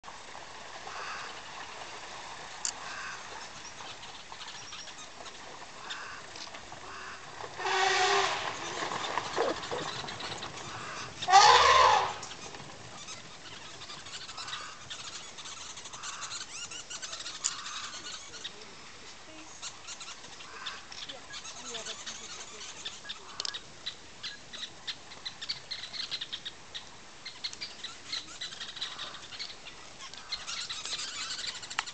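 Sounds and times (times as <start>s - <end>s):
elephant trumpeting: 7.6s - 8.6s, 10.8s - 12.2s.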